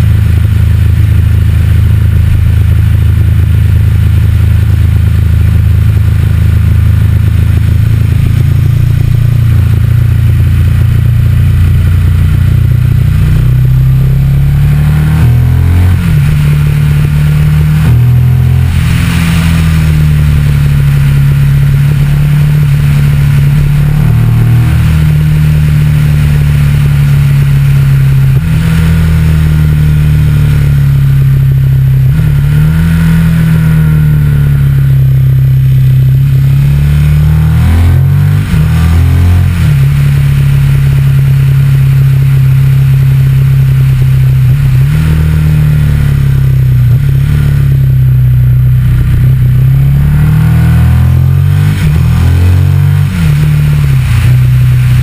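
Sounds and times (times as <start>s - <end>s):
motorcycle engine running: 0.0s - 55.0s
road noise: 0.0s - 55.0s
wind noise: 14.7s - 25.1s.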